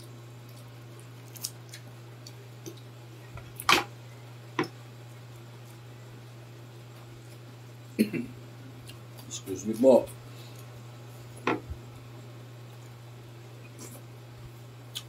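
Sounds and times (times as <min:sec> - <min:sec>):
crispy food crunching: 0:00.3 - 0:03.8.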